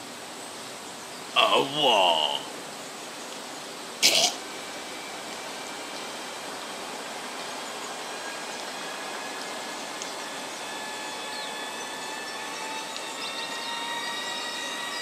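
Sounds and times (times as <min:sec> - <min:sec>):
outdoor background hiss: 0:00.0 - 0:15.0
faint sustained tones: 0:04.4 - 0:15.0.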